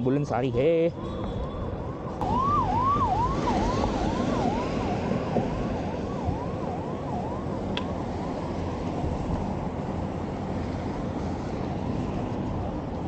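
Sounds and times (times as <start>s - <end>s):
road traffic noise: 0.0s - 13.0s
ambulance siren wailing: 0.9s - 9.7s.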